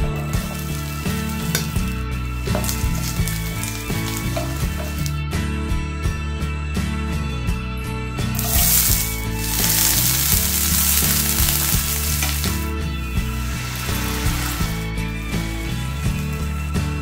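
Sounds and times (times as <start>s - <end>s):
background music with beat: 0.0s - 17.0s
onions sizzling in oil: 0.3s - 5.1s, 8.4s - 16.4s.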